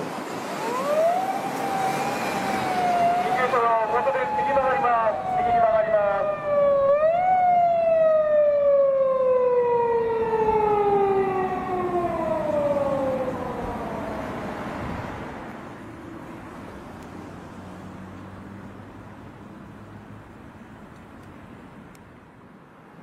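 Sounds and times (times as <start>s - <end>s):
police siren wailing: 0.5s - 15.2s.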